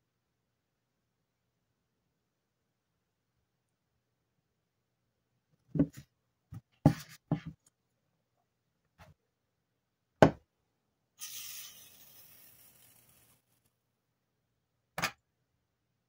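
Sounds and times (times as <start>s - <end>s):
objects knocking on a desk: 5.7s - 7.6s
soft hiss: 11.2s - 13.8s.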